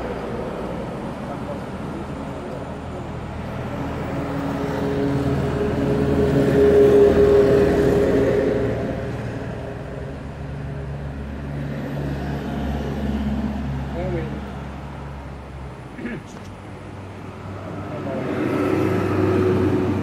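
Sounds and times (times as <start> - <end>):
vehicle engine hum: 0.0 - 20.0.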